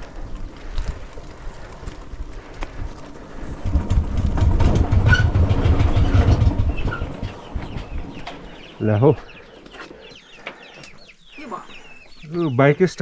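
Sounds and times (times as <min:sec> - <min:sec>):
motorcycle rumble: 0:02.2 - 0:08.9
rattles and clicks: 0:03.4 - 0:08.6.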